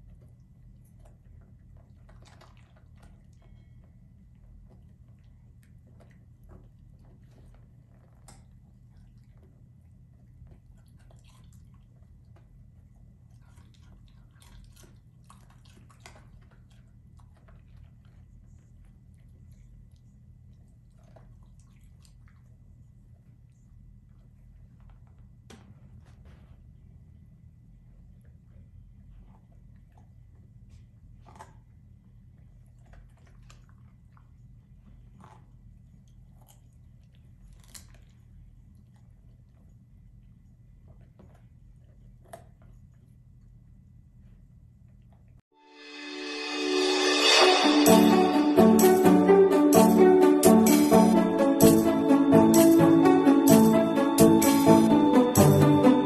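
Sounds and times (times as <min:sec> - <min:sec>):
puppy crunching carrot: 0:00.0 - 0:18.5, 0:29.1 - 0:39.6.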